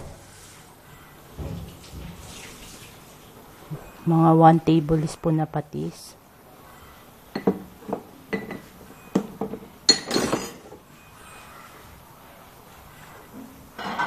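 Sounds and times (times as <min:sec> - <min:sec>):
metal spoon clinking on pot: 0:09.9 - 0:10.6.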